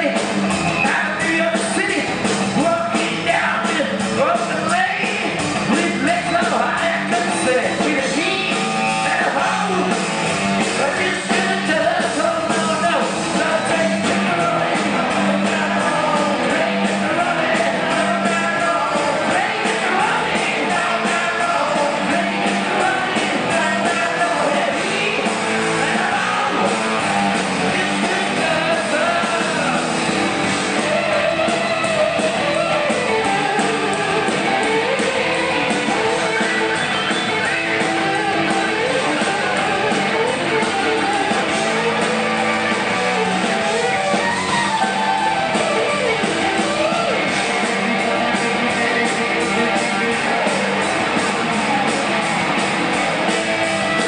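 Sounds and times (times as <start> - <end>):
man singing lead vocal: 0.0 - 10.0, 10.6 - 42.0
rock band playing: 0.0 - 54.0.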